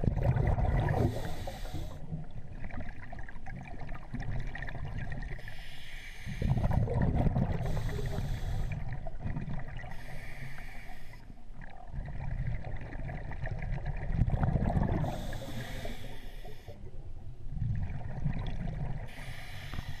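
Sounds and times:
underwater rumbling and sloshing: 0.0s - 20.0s
hiss bursts: 19.1s - 20.0s.

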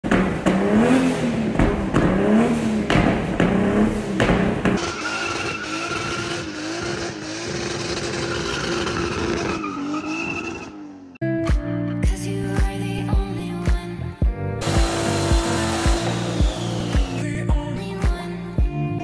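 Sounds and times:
car engine revving with cracks: 0.0s - 11.1s, 14.6s - 17.4s.

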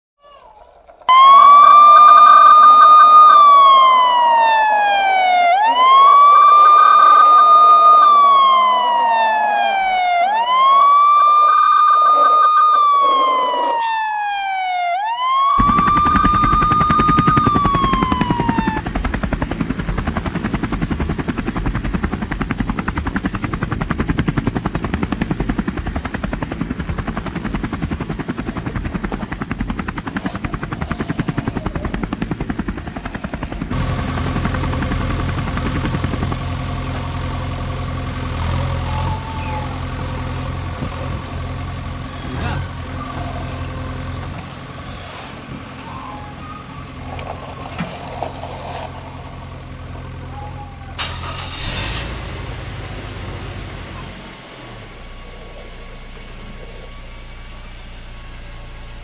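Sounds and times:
toy loader humming: 0.2s - 14.4s, 15.2s - 50.3s
toy police siren wailing: 0.2s - 19.7s, 30.2s - 32.0s, 38.6s - 41.0s, 42.0s - 51.7s
toy propeller rattling whirr: 5.6s - 8.5s, 15.5s - 19.4s, 44.8s - 49.4s.

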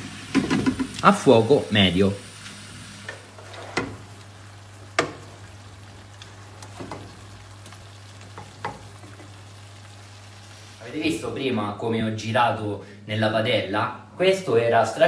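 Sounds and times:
faint sizzle: 0.0s - 15.0s
spoon stirring food in pan: 6.2s - 9.4s
spoon knocking against pan: 8.4s - 9.3s.

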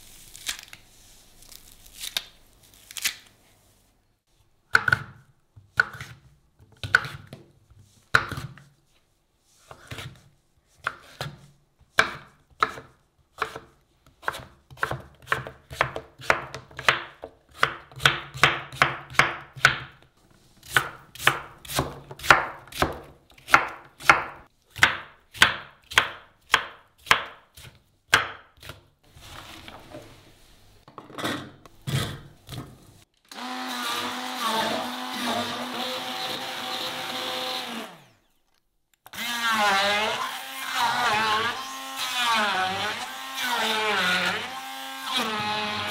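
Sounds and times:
immersion blender running: 33.3s - 38.2s.

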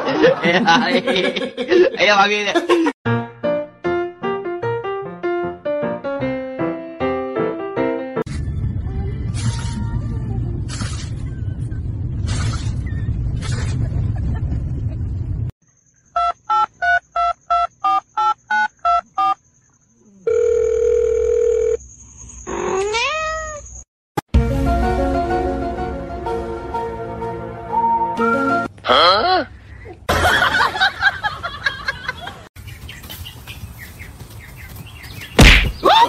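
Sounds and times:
electronic beeps: 16.1s - 19.4s
cat meowing: 22.8s - 23.7s.

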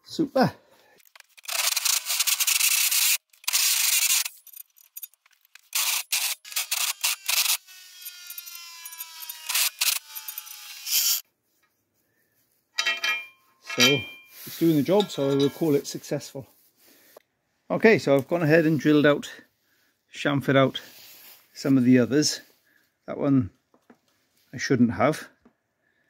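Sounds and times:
drill cutter rasping against metal: 1.2s - 11.2s
drill whine: 5.7s - 11.2s.

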